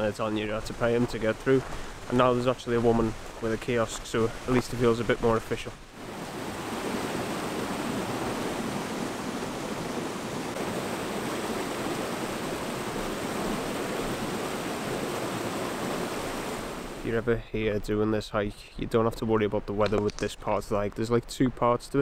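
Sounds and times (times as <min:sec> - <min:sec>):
river water rushing: 0:00.0 - 0:17.1.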